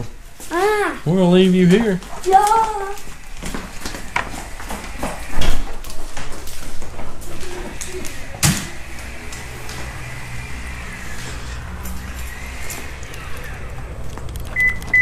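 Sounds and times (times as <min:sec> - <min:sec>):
footsteps on concrete floor: 0:00.0 - 0:00.8, 0:01.5 - 0:15.0
door thudding shut: 0:08.3 - 0:08.8.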